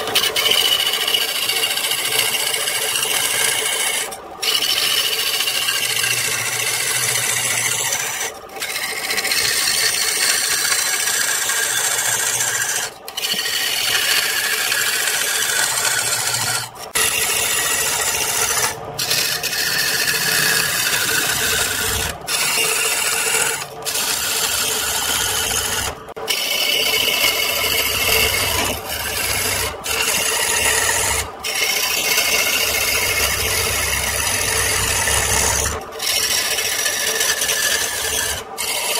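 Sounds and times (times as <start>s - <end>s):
lathe tool shaving wood: 0.0s - 38.9s.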